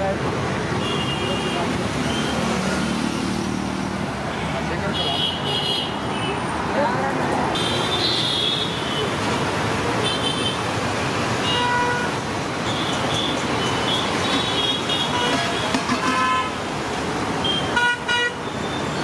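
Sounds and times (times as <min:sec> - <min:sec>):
road traffic: 0:00.0 - 0:19.0.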